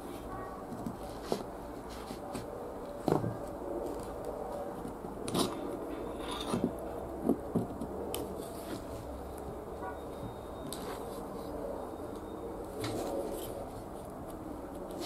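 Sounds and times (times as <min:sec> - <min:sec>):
metal pick scraping: 0:05.3 - 0:06.8.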